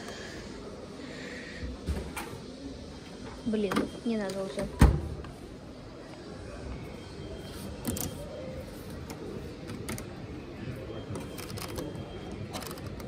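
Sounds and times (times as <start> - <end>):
store background murmur: 0.0 - 13.0.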